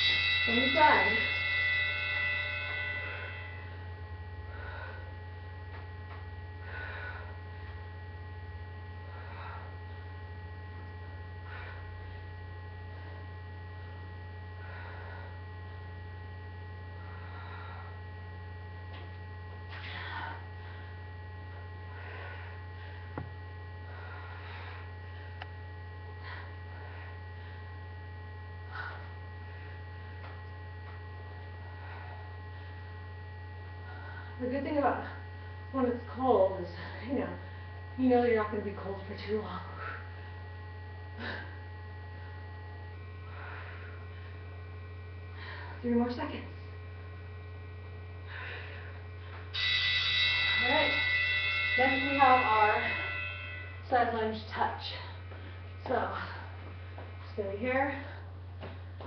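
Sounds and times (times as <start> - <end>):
thin steady tones: 0.0 - 5.1, 41.2 - 58.3
electrical mains hum: 0.0 - 59.0.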